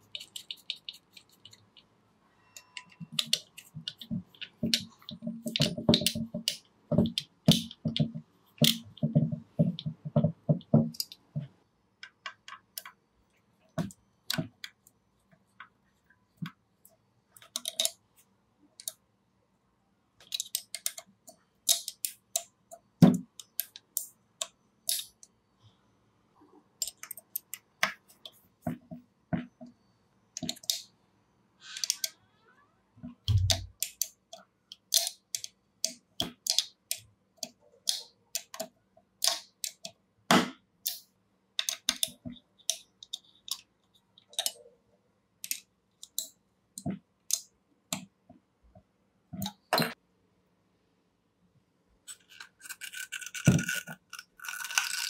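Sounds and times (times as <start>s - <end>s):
clicks and taps of metal parts: 2.6s - 13.0s, 17.4s - 18.0s, 20.2s - 25.3s, 26.8s - 29.5s, 33.2s - 44.6s, 45.4s - 48.1s.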